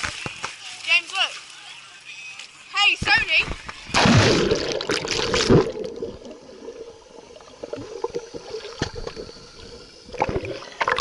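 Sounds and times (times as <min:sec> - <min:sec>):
water splash: 0:03.6 - 0:06.9
low steady hum: 0:03.8 - 0:11.0.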